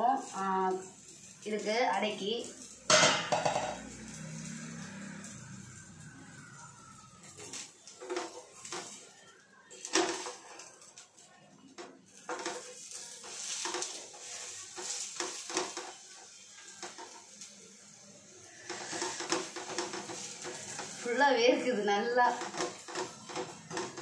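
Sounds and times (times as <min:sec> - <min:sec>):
wooden spatula knocking on pan: 0:02.9 - 0:03.9.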